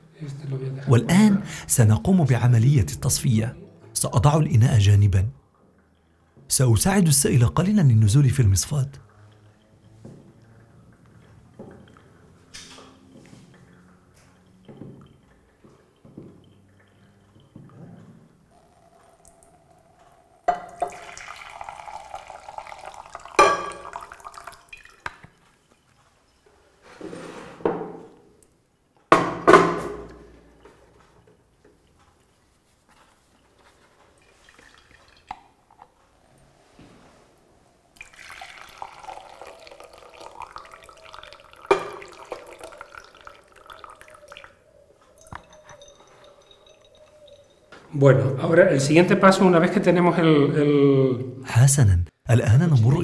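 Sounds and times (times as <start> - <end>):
liquid pouring into glass jug: 6.5 - 26.4, 33.6 - 35.8, 37.9 - 47.8
sharp knocks: 29.1 - 30.1.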